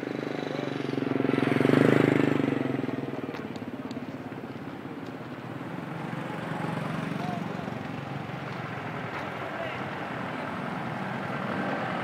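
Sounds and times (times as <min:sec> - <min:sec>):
motorcycle engine passing by: 0:00.0 - 0:03.3.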